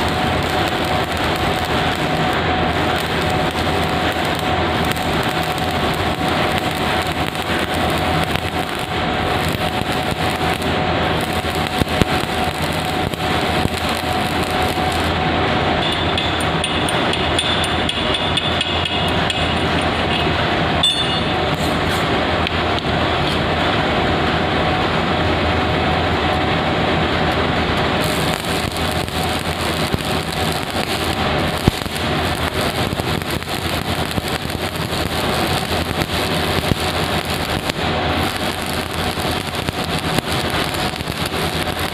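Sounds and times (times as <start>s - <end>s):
welding arc crackling: 0.0s - 25.1s, 25.8s - 41.9s
constant hum: 0.0s - 41.9s.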